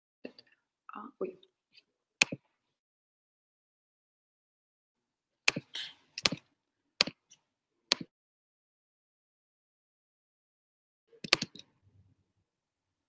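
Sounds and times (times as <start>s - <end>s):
computer keys clicking: 5.5s - 7.3s, 11.2s - 11.7s.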